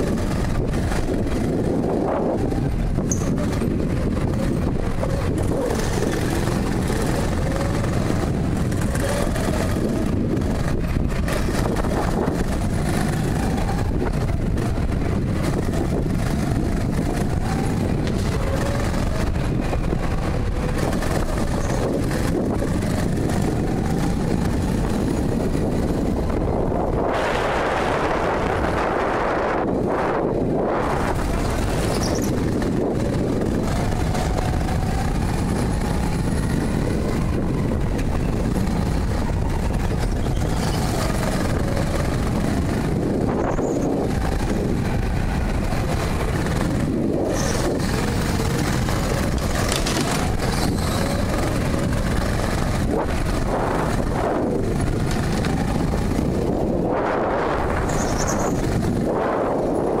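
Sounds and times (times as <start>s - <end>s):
go-kart motor: 0.0s - 60.0s
wind buffeting microphone: 0.0s - 60.0s.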